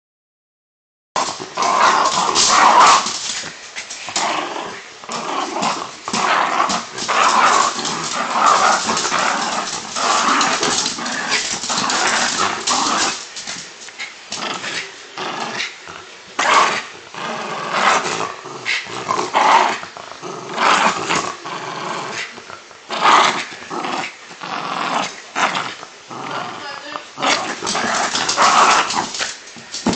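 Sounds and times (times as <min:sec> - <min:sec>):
dog growling: 0:01.2 - 0:29.9.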